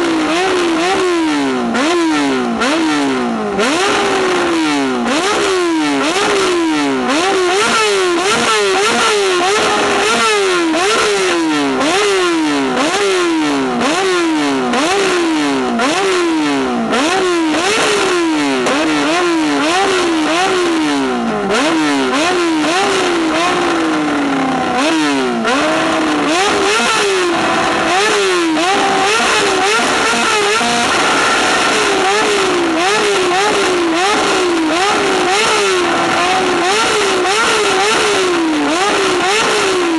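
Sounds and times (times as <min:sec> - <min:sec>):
motorcycle engine revving: 0:00.0 - 0:39.9
exhaust crackles and pops: 0:03.5 - 0:12.1, 0:16.9 - 0:39.9.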